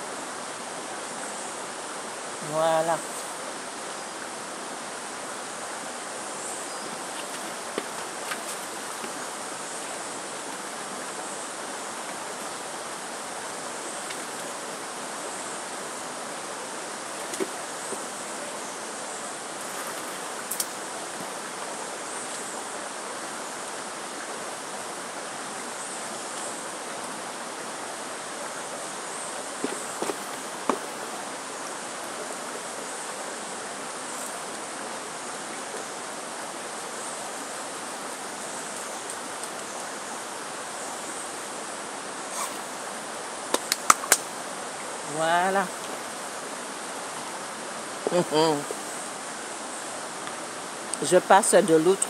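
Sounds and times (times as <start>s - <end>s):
running water rushing: 0.0s - 52.0s.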